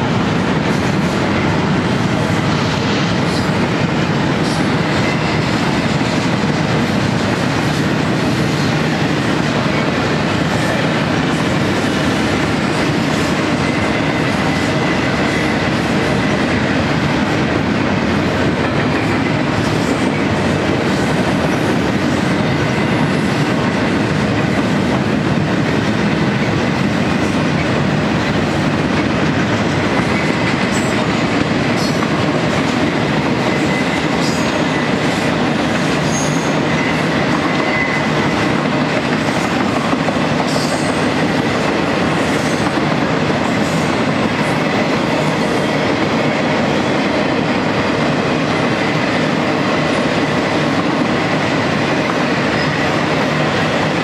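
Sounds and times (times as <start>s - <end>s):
freight train rumbling and rattling: 0.0s - 54.0s
high wheel squeal: 36.0s - 38.4s.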